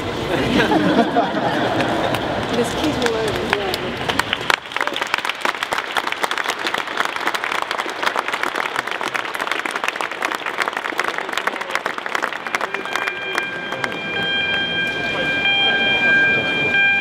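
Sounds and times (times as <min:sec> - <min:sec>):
crowd applauding: 0:00.9 - 0:15.0.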